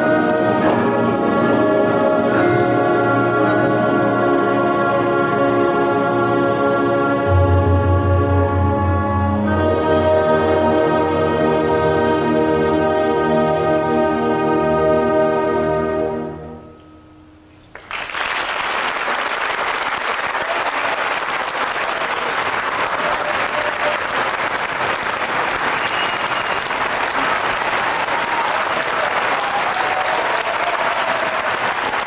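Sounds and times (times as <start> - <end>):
orchestra and gamelan chord: 0.0 - 17.4
audience applause: 17.8 - 32.0.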